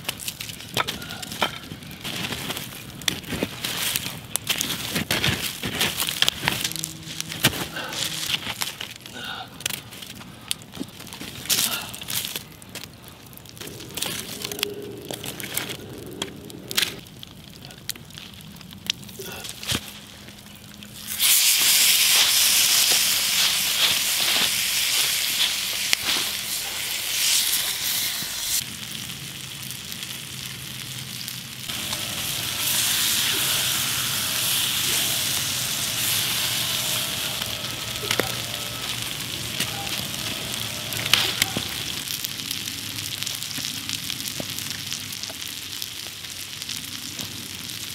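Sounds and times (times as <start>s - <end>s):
stick poking coals: 0.0s - 17.0s, 21.0s - 28.3s, 31.7s - 42.2s
campfire crackling: 0.0s - 47.9s
chicken sizzling on hot rock: 10.0s - 47.9s.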